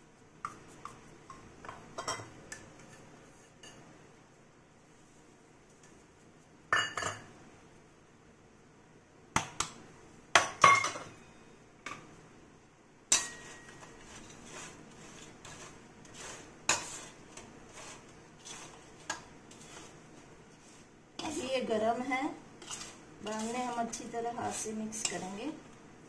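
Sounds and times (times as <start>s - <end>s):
steel bowl and spoon clinking: 13.1s - 14.4s
spoon stirring crisp chips: 13.1s - 21.5s, 22.6s - 25.5s.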